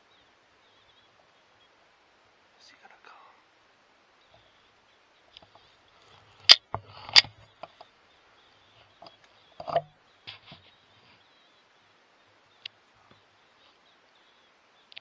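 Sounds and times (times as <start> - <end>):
sharp clicks and light knocks: 6.4 - 7.9, 9.0 - 10.6.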